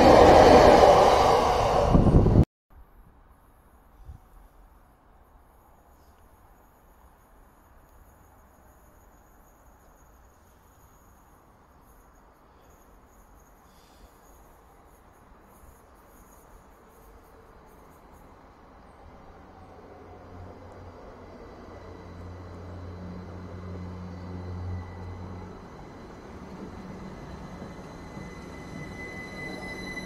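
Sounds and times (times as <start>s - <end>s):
train low rumble: 0.0s - 2.4s, 10.7s - 30.0s.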